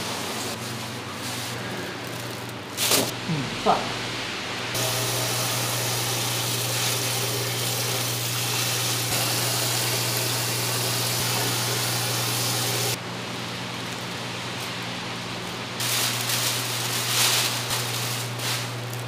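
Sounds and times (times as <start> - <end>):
tap water running into sink: 4.8 - 13.0.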